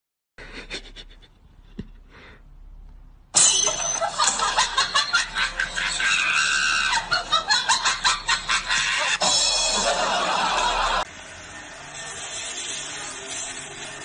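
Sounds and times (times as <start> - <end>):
person shrieking laughter: 5.4 - 9.2.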